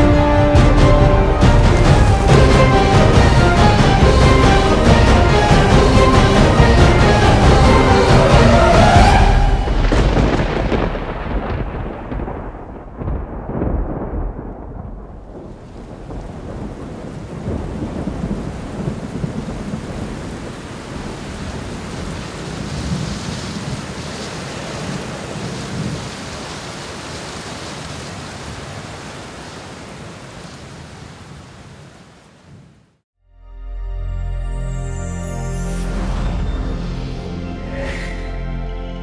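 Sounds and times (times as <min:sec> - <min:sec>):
rolling thunder: 0:00.0 - 0:26.3
steady rain falling: 0:00.0 - 0:33.0.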